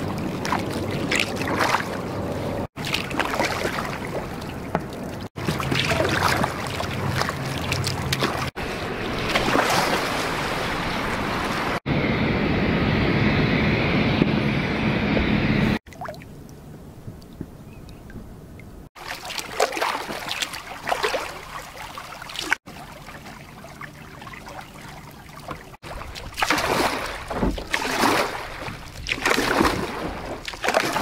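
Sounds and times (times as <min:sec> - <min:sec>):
kayak paddle splashing: 0:00.0 - 0:02.1, 0:02.7 - 0:11.8, 0:19.0 - 0:31.0
water trickling off paddle: 0:02.8 - 0:11.8.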